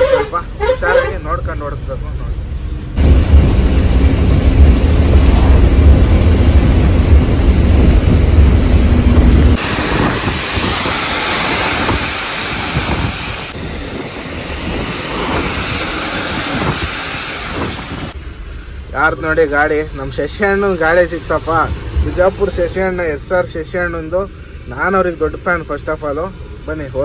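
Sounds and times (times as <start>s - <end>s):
lorries passing: 0.0s - 27.0s
lorry engine and road rumble: 0.0s - 27.0s
tyres hissing on wet road: 0.0s - 27.0s
wind on microphone: 3.0s - 18.2s.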